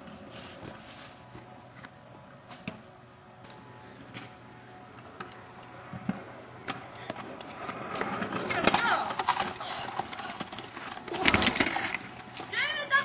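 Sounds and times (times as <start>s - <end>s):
scooter wheels clicking on concrete: 4.9s - 13.0s.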